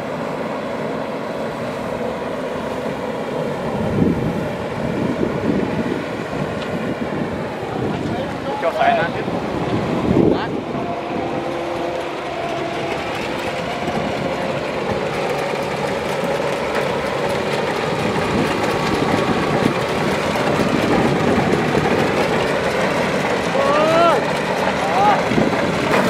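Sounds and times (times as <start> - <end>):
diesel engine running under load: 0.0 - 26.0
rattle of harvesting machinery: 7.9 - 26.0.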